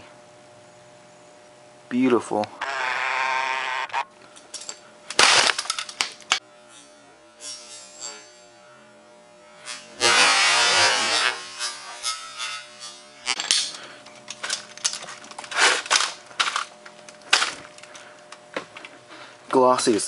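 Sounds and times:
sledgehammer smashing screen: 5.2 - 5.9.

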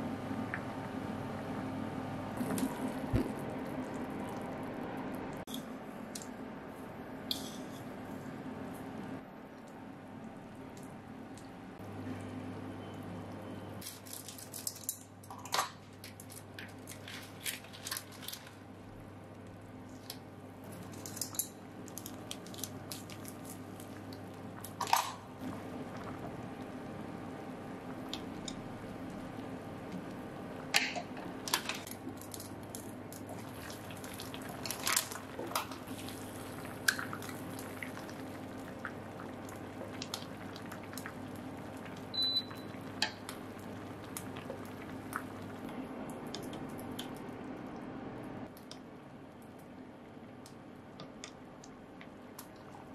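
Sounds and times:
broth bubbling in a pot: 0.0 - 6.3, 14.4 - 47.8.

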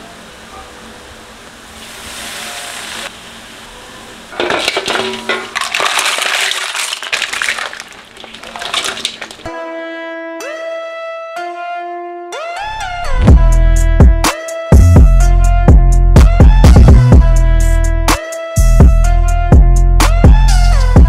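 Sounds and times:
crackling sizzle: 4.2 - 9.5
shells clattering against wok: 4.4 - 9.5.

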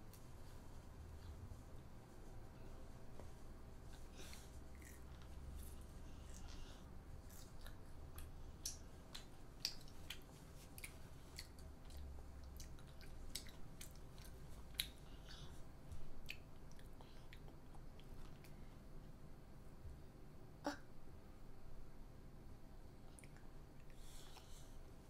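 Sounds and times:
child chewing crisp food: 3.1 - 18.7
mouth clicks and smacks: 7.3 - 15.3.

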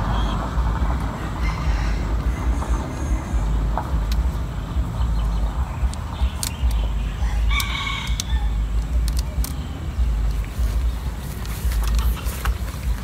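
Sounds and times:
wind rumbling on microphone: 0.0 - 13.0
rooster crowing: 1.2 - 3.4, 7.2 - 8.6
light clicks: 3.7 - 5.0, 5.8 - 13.0.

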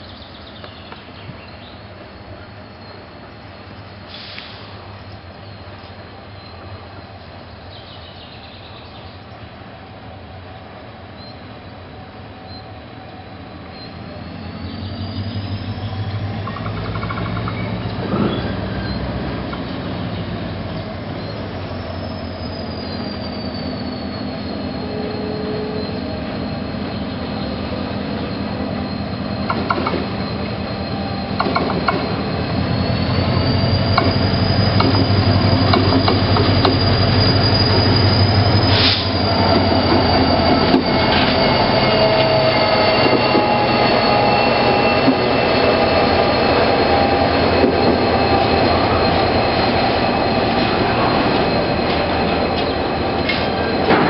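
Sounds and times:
diesel locomotive passing: 0.0 - 54.0
high wheel squeal: 13.7 - 54.0.

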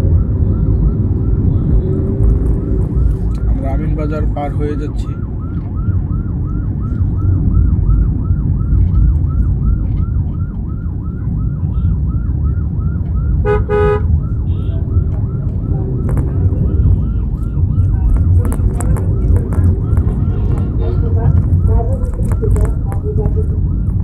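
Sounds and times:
car engine and road noise: 0.0 - 24.0
warbling siren-like tone: 0.0 - 24.0
vehicle horn blast: 13.4 - 14.7.

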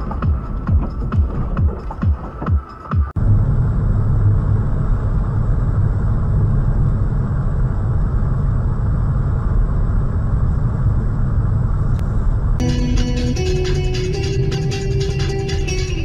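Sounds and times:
car driving interior rumble: 0.0 - 16.0.

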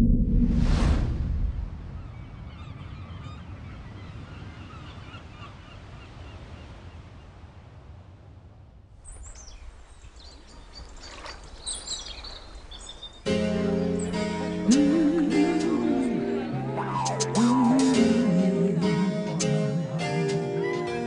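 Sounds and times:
steady low rumble: 0.0 - 2.6
birds chirping: 9.0 - 17.9.

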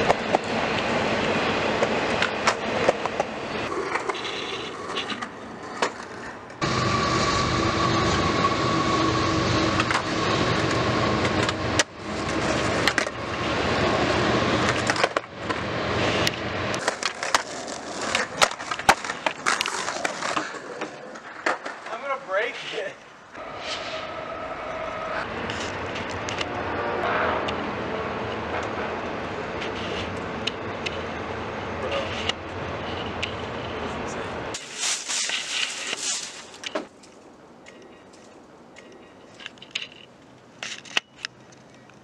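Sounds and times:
skateboard wheels rolling on concrete: 0.0 - 42.0
skateboard clacking on ground: 1.7 - 6.6, 11.2 - 13.2, 14.6 - 15.6, 16.2 - 23.0.

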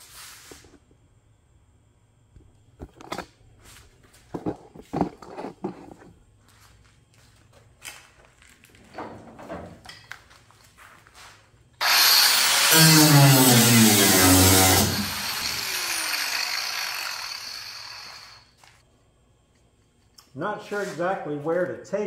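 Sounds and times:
footsteps: 3.6 - 8.9, 10.1 - 11.6.

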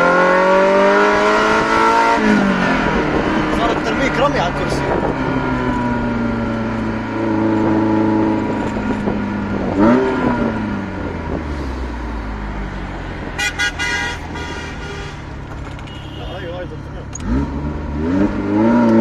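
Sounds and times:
car horn toots: 13.4 - 16.8.

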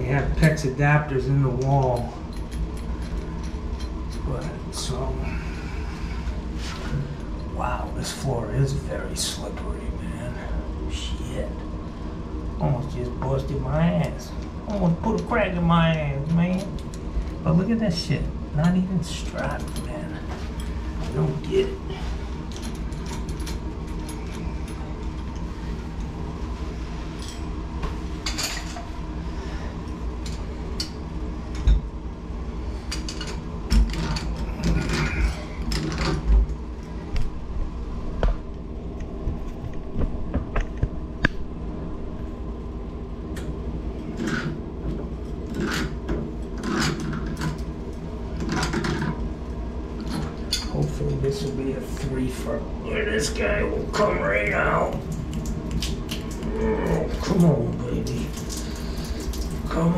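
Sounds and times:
steady low hum: 0.0 - 59.9.

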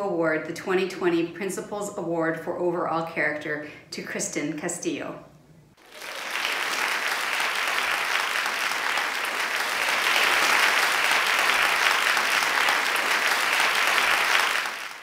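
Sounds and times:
crowd applause: 5.8 - 15.0.

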